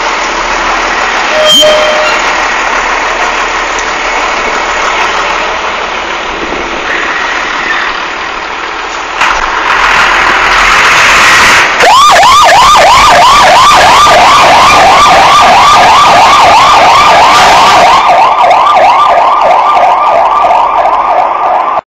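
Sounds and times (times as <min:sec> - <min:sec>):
fire engine siren yelping: 0:00.0 - 0:08.5, 0:09.4 - 0:21.8
loud rushing noise: 0:00.0 - 0:20.1.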